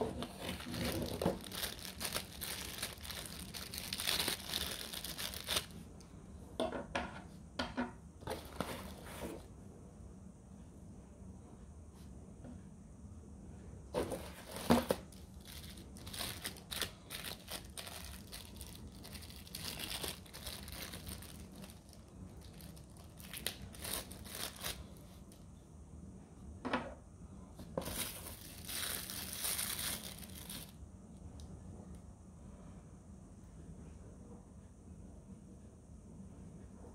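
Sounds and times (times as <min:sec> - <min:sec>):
plastic packaging crinkling: 0:00.0 - 0:05.8, 0:14.0 - 0:25.2, 0:27.8 - 0:30.8.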